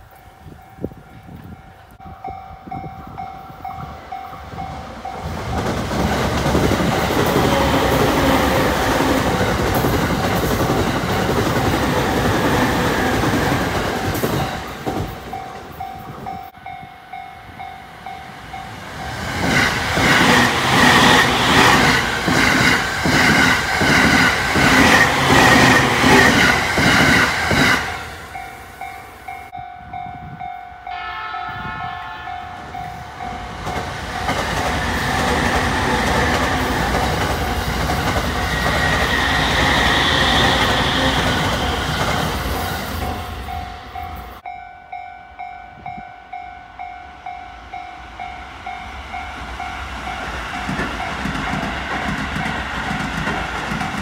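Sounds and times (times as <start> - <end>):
electric trains passing: 0.0 - 54.0
wheels clacking over rail joints: 50.2 - 54.0.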